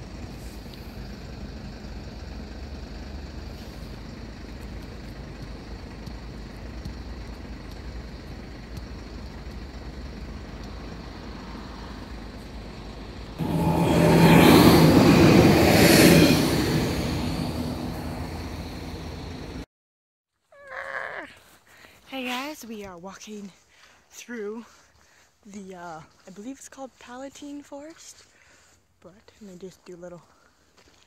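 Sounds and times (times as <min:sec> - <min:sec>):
passing passenger train: 0:00.0 - 0:19.7
road traffic hum: 0:00.0 - 0:19.7.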